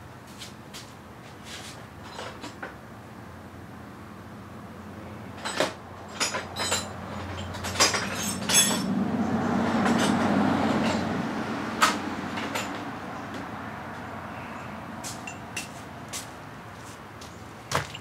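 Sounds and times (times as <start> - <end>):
sharp knocks and clanks: 5.4 - 11.2, 11.8 - 13.5, 17.7 - 18.0.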